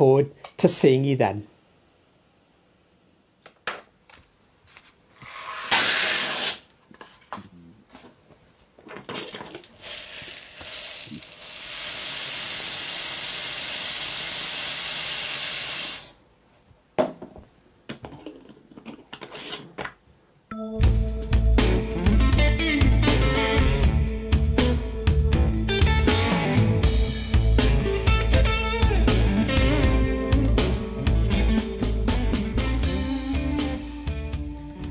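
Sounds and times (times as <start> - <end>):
loud rattle: 9.1 - 14.8
rushing hiss: 9.9 - 16.2
objects knocking on workbench: 17.0 - 18.9.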